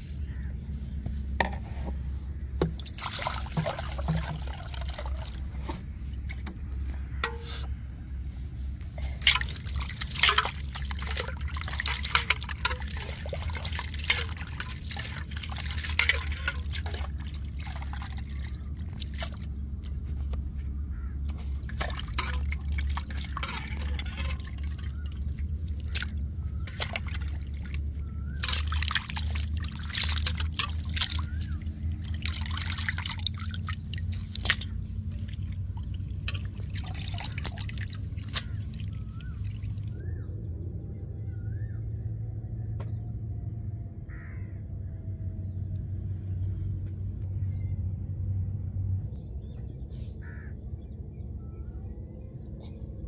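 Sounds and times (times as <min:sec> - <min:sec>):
water splashing and dripping: 0:02.6 - 0:05.8, 0:09.0 - 0:20.5, 0:21.2 - 0:40.0
hands squeezing squid in water: 0:09.2 - 0:20.1, 0:21.6 - 0:40.0.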